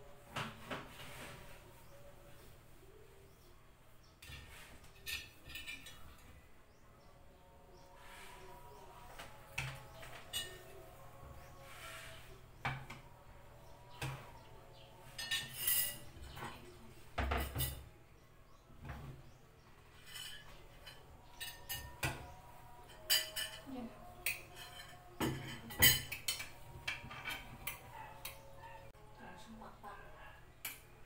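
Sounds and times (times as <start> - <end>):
spoons clinking on plates: 4.2 - 6.2, 9.2 - 11.0, 14.0 - 17.9, 19.9 - 28.8.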